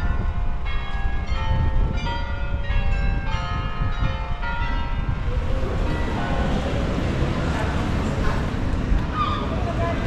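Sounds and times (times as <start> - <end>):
tower bells ringing: 0.0 - 6.8.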